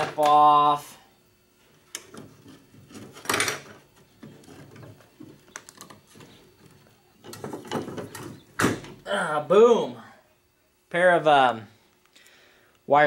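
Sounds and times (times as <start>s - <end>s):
clicks and knocks of handled parts: 1.9s - 8.4s.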